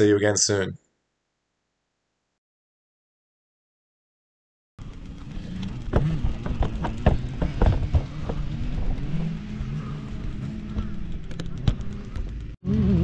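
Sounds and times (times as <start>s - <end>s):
low wavering hum: 4.8s - 13.0s.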